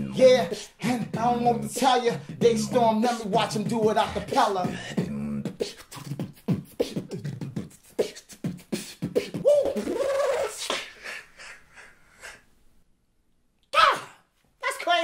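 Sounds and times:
gliding vocal line: 0:00.0 - 0:08.9
human beatbox: 0:00.0 - 0:11.2.

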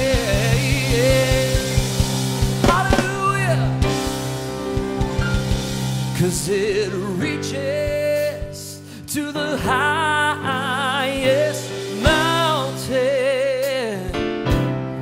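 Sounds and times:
man singing gospel: 0:00.0 - 0:04.0, 0:06.1 - 0:14.6
drum hits: 0:00.0 - 0:06.8
sustained chords: 0:00.5 - 0:07.3.

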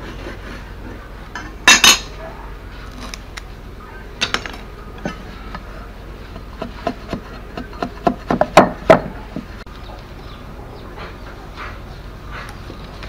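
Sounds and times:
knife chopping bamboo on wood: 0:06.4 - 0:09.5.

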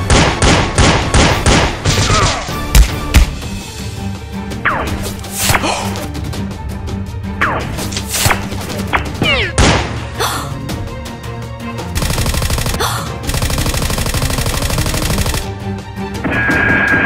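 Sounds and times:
action music: 0:00.0 - 0:17.0
machine-gun fire: 0:12.0 - 0:15.5.

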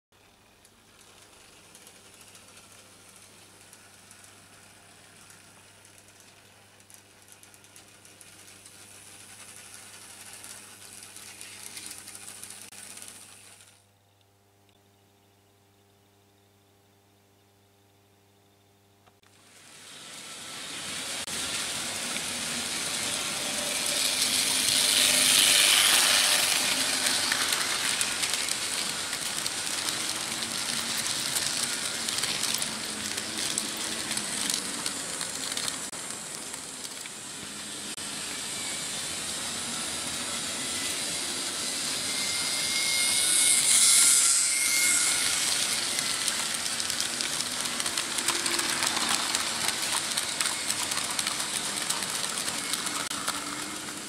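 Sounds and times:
model train wheels on rails: 0:00.2 - 0:13.8, 0:19.1 - 0:54.0
faint hum: 0:13.6 - 0:19.3.

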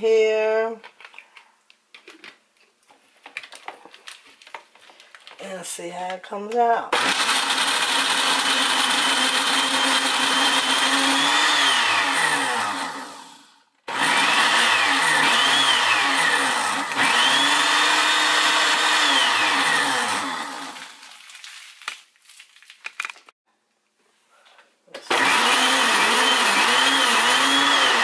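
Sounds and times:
blender motor running: 0:06.9 - 0:21.0, 0:25.1 - 0:28.0.

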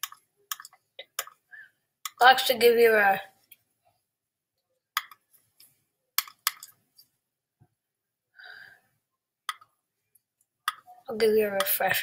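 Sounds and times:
computer mouse clicking: 0:00.0 - 0:01.4.

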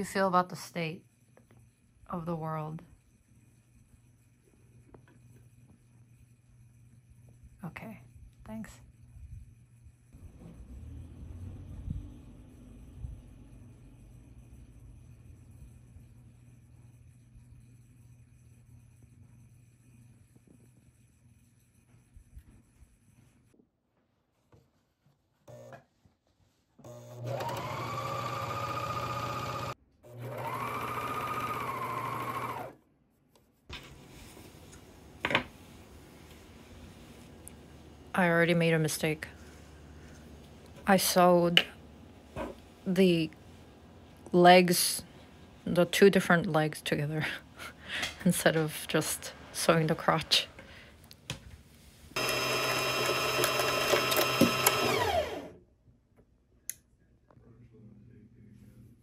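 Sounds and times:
electric sewing machine stitching: 0:25.5 - 0:25.8, 0:26.8 - 0:32.8, 0:52.2 - 0:55.6.

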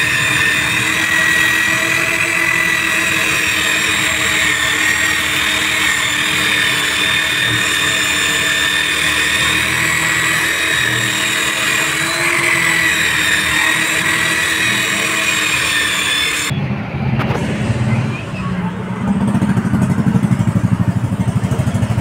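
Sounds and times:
power buffer whine: 0:00.0 - 0:16.5.

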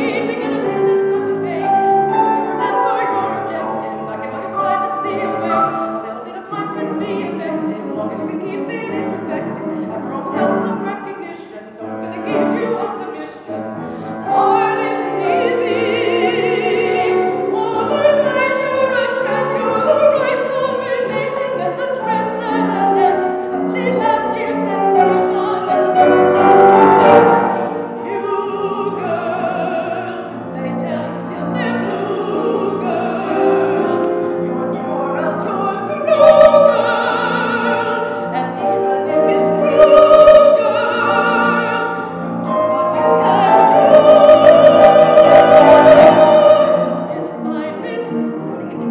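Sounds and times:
grand piano: 0:00.0 - 0:48.9
woman singing operatically: 0:00.0 - 0:48.9.

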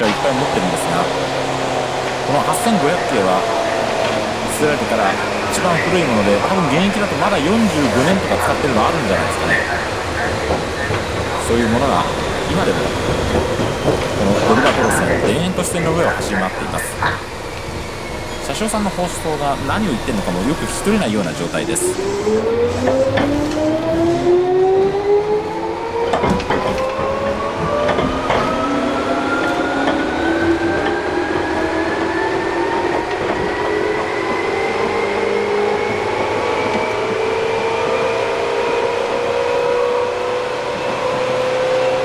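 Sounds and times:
person narrating: 0:00.0 - 0:01.1, 0:04.5 - 0:10.5, 0:14.2 - 0:17.2, 0:18.5 - 0:22.1
train motors whining: 0:00.0 - 0:39.6.

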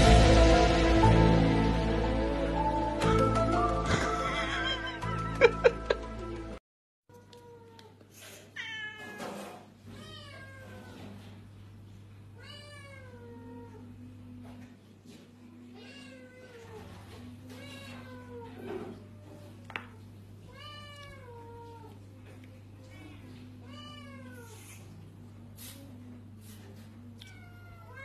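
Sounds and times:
cat meowing: 0:08.6 - 0:11.0.

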